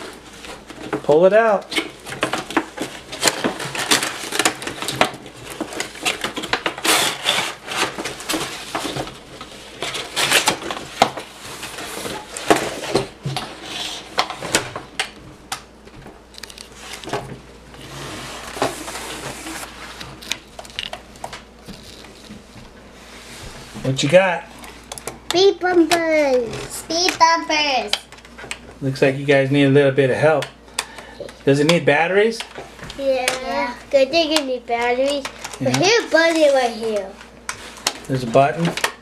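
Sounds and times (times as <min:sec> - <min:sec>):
cardboard rustling and scraping: 0:00.0 - 0:14.9, 0:16.2 - 0:24.9, 0:32.7 - 0:38.8.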